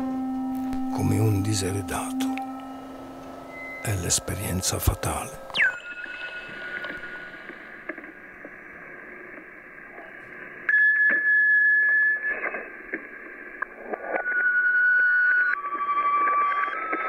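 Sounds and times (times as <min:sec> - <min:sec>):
crackles and clicks: 0:00.3 - 0:17.0
radio static: 0:00.8 - 0:02.4, 0:03.9 - 0:10.6
steady whistling tone: 0:00.8 - 0:07.6.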